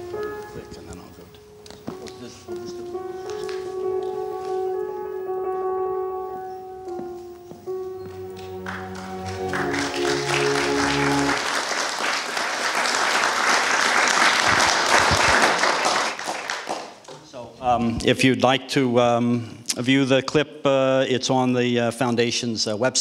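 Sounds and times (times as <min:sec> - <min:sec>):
music with held chords: 0:00.0 - 0:11.6
audience applause: 0:08.3 - 0:17.0.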